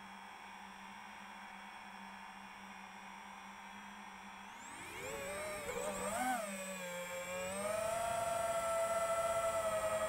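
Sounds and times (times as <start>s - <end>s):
drone motors whining: 4.4s - 10.0s.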